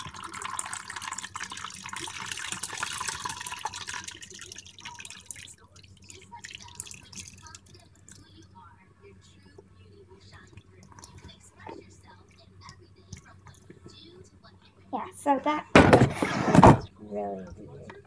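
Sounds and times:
water beads pouring into bowl: 0:00.0 - 0:07.8.

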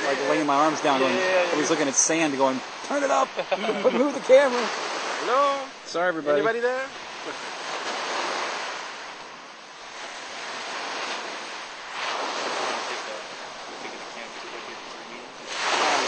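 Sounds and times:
ocean surf washing ashore: 0:00.0 - 0:16.0
wind on microphone: 0:07.0 - 0:16.0.

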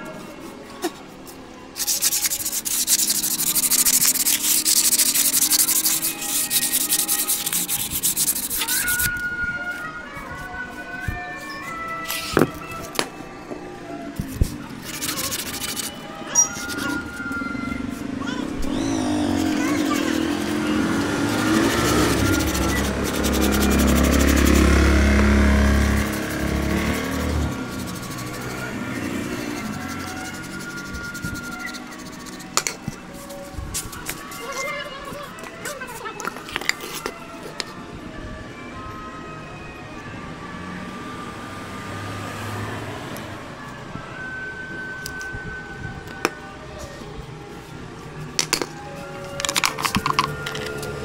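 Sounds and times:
hard rubbing strokes: 0:01.8 - 0:09.2, 0:14.3 - 0:18.1, 0:18.7 - 0:34.7
engine humming: 0:11.7 - 0:34.5.

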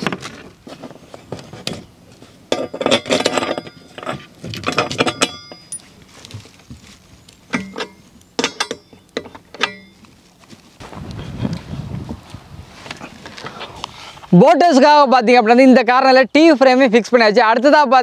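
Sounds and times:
metal bolts and frame clinking: 0:02.5 - 0:06.0, 0:07.5 - 0:10.0.

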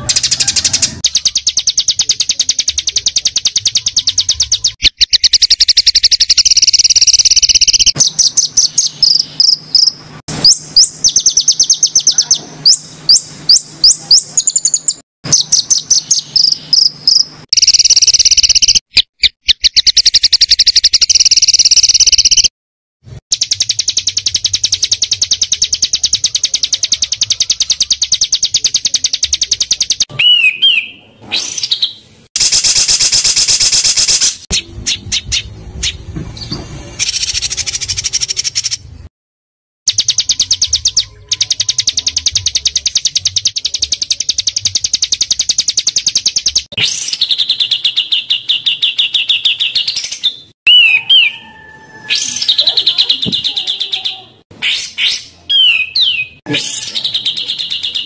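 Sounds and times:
sliding whistles: 0:50.7 - 0:52.5.

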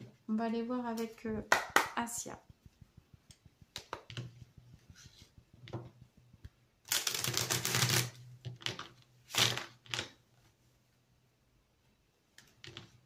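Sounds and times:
cards shuffling: 0:06.9 - 0:10.2.

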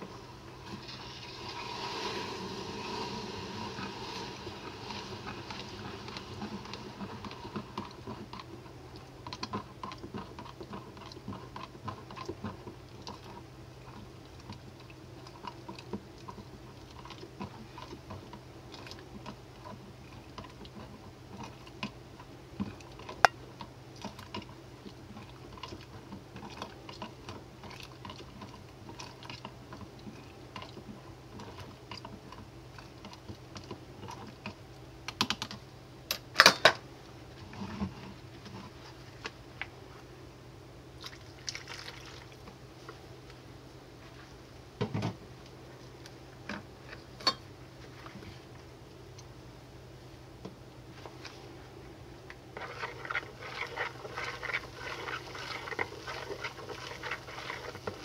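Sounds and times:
low steady hum: 0:00.0 - 0:58.0
spoon stirring in plastic cup: 0:52.3 - 0:58.0.

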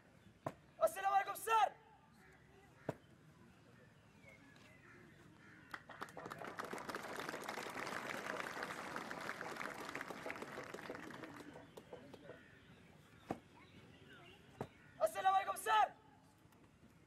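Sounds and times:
audience clapping: 0:05.7 - 0:12.3.

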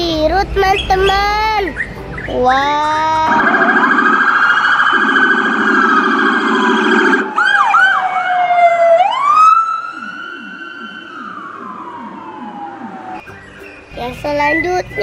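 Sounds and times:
police siren: 0:03.3 - 0:13.3.

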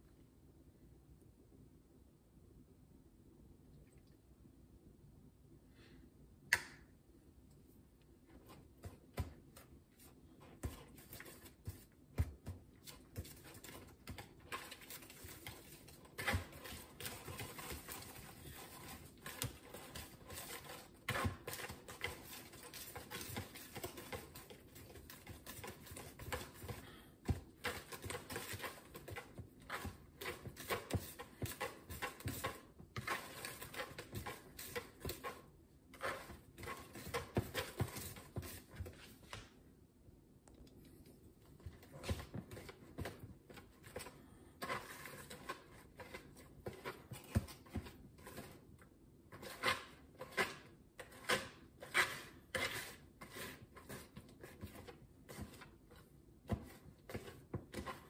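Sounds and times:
whisk beating batter in bowl: 0:10.0 - 0:39.0, 0:41.8 - 0:48.7, 0:49.3 - 0:58.0.

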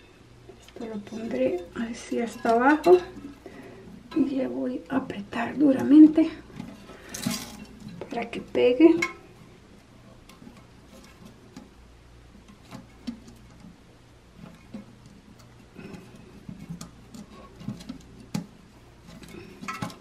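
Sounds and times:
plastic parts clicking in toilet tank: 0:14.4 - 0:20.0.

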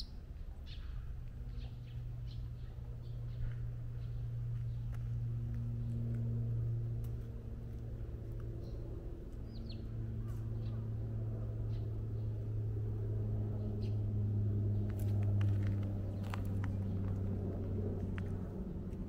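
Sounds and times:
low mechanical hum: 0:00.0 - 0:19.0
bird chirps: 0:09.4 - 0:10.8.

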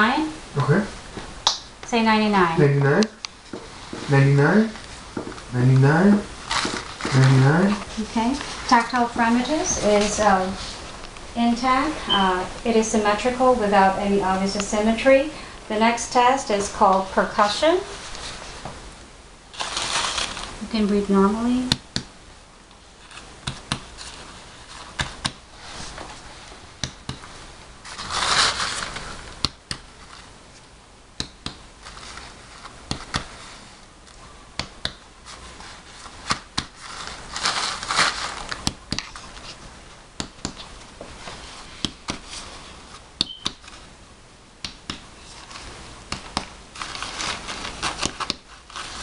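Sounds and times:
rustle: 0:19.5 - 0:20.9, 0:27.8 - 0:29.2.

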